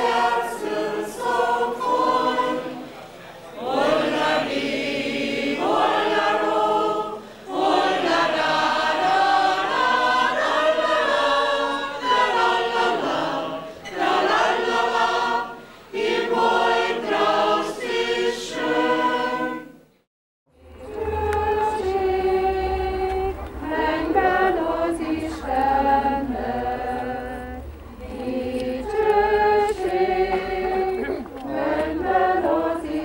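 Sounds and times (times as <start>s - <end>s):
choir singing: 0.0s - 19.9s, 20.5s - 33.0s
singers breathing: 7.2s - 7.5s, 15.6s - 16.0s.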